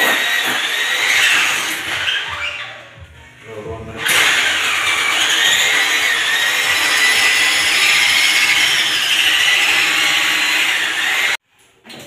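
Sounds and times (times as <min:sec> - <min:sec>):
electric drill whining: 0:00.0 - 0:02.5, 0:04.0 - 0:11.4.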